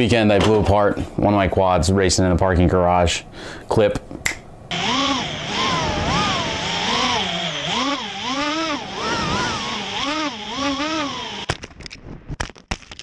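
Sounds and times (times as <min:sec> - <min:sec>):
quadcopter motors whining: 0:04.7 - 0:11.5.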